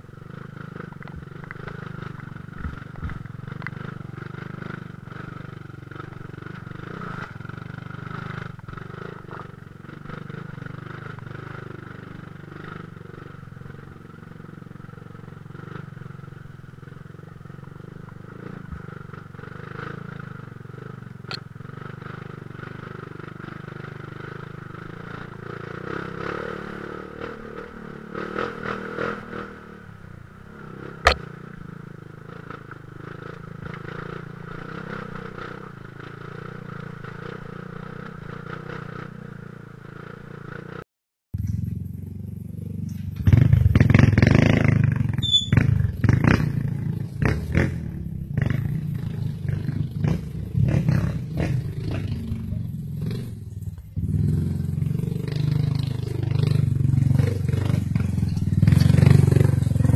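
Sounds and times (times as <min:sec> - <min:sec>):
dirt bike engine running: 0:00.0 - 0:40.8, 0:41.4 - 0:59.9.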